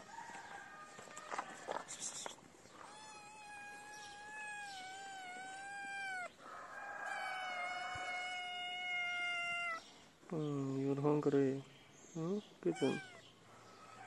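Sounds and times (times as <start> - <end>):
cat meowing: 2.8 - 9.9, 12.7 - 13.3.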